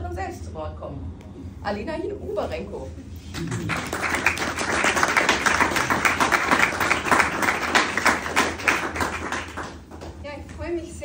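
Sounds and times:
audience applauding: 0:03.4 - 0:10.1.

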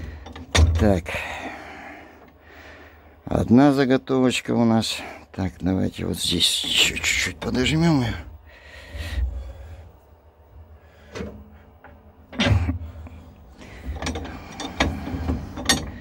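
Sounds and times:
bench vise metal clicks and knocks: 0:13.9 - 0:16.0.

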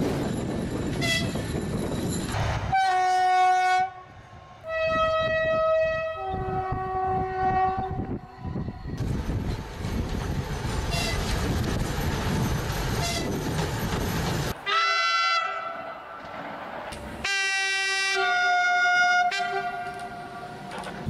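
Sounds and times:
diesel locomotive passing: 0:00.0 - 0:21.0
train horn blasts: 0:02.7 - 0:08.6, 0:14.6 - 0:16.0, 0:17.2 - 0:20.5.

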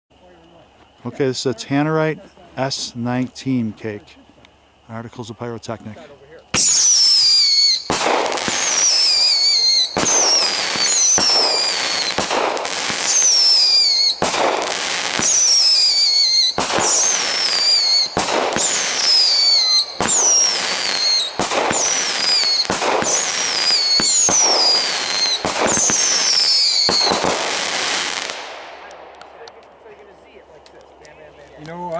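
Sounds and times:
firework whistles: 0:06.5 - 0:29.5
firework bangs: 0:06.5 - 0:30.4.

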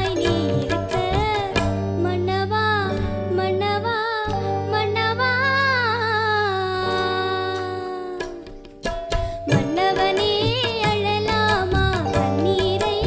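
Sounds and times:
live band low notes: 0:00.0 - 0:05.6
girl singing: 0:00.0 - 0:08.6, 0:09.2 - 0:13.0.

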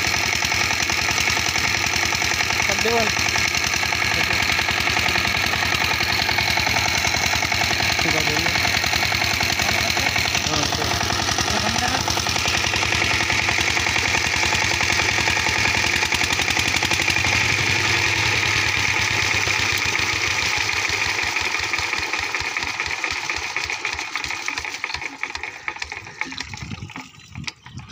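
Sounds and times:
diesel engine running: 0:00.0 - 0:27.9
water gushing from pipe: 0:00.0 - 0:27.9.

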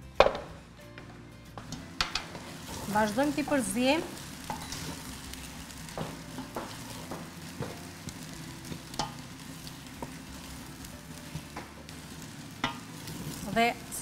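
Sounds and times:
faint sizzle in a pan: 0:01.8 - 0:14.0
wooden spoon scraping and tapping: 0:05.9 - 0:07.8.

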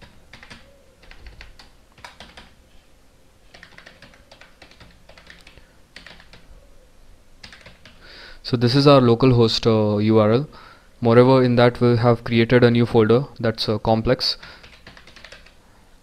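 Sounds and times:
keyboard typing: 0:00.0 - 0:02.6, 0:03.5 - 0:06.5, 0:07.4 - 0:08.0, 0:14.5 - 0:15.6.

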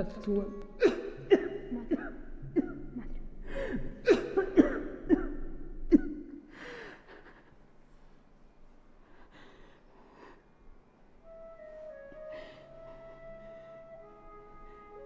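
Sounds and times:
woman sobbing: 0:00.8 - 0:05.2.

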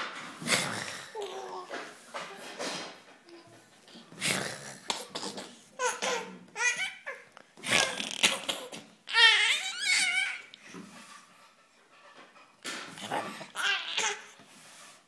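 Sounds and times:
baby laughing: 0:04.9 - 0:10.6, 0:13.0 - 0:14.4.

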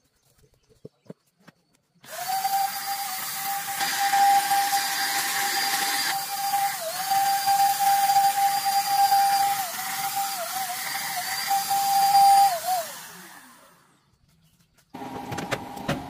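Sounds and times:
power tool high-pitched whine: 0:02.0 - 0:14.0.

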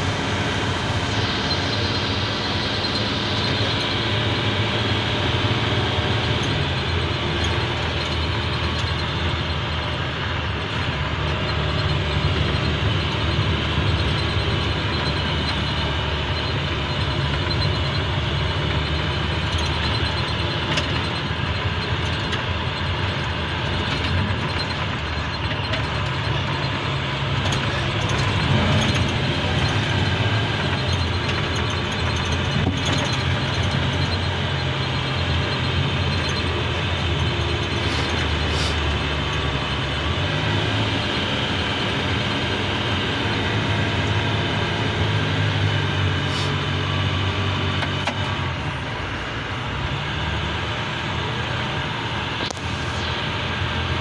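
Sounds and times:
truck engine running: 0:00.0 - 0:54.0.

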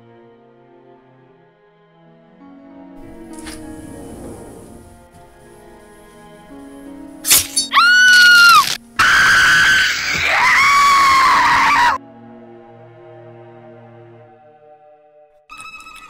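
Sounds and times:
soft music: 0:00.0 - 0:09.0, 0:12.0 - 0:16.0
sharp hit: 0:07.2 - 0:08.0
woman screaming: 0:07.6 - 0:12.0.

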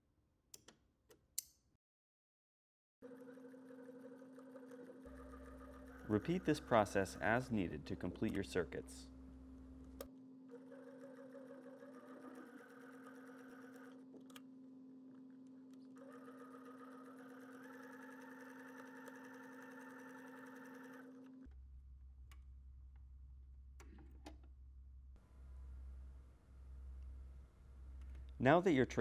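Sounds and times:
sewing machine running: 0:03.0 - 0:08.2, 0:10.5 - 0:14.1, 0:15.9 - 0:21.5.

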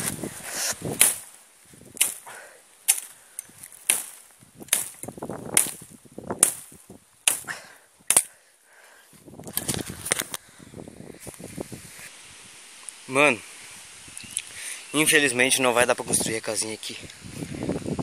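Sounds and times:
blade chopping through brush: 0:00.0 - 0:08.4
rustling of cut growth: 0:00.0 - 0:18.0.

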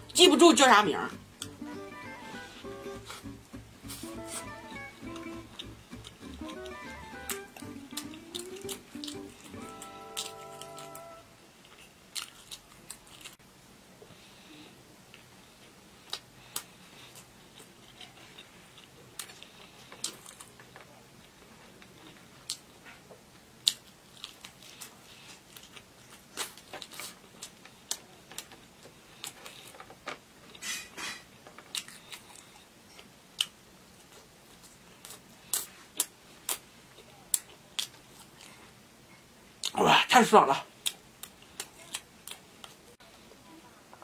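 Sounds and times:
chewing and biting food: 0:05.1 - 0:13.4, 0:23.6 - 0:29.9.

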